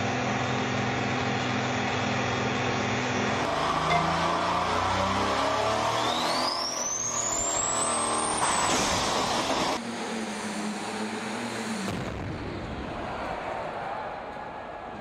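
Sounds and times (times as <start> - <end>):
tractor engine running hard: 0.0 - 5.2
diesel engine whine rising: 0.0 - 12.9.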